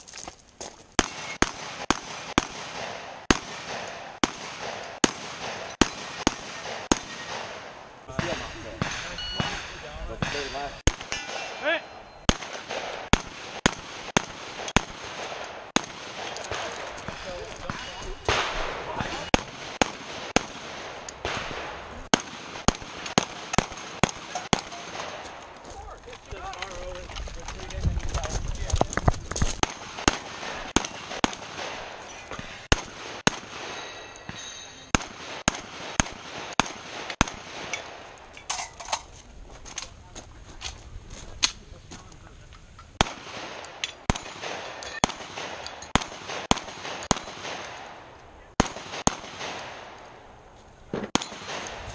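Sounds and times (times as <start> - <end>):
gunshots: 1.0 - 25.6, 29.4 - 38.2, 43.0 - 50.2, 50.9 - 51.9
metallic ring: 9.0 - 12.3, 33.7 - 34.9.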